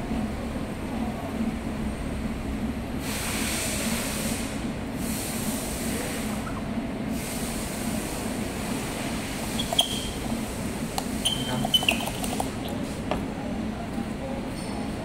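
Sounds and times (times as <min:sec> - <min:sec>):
steady low hum: 0:07.8 - 0:14.4
tissue rubbing on glass: 0:09.3 - 0:13.0.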